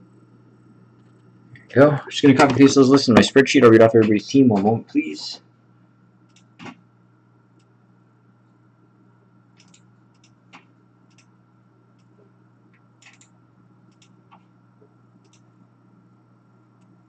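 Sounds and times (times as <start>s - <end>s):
low electrical hum: 0.0s - 17.0s
mouse and keyboard clicks: 9.6s - 11.3s, 13.0s - 13.3s.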